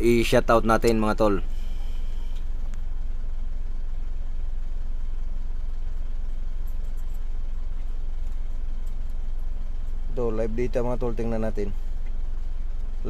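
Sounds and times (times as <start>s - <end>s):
diesel engine idling: 0.0s - 6.6s.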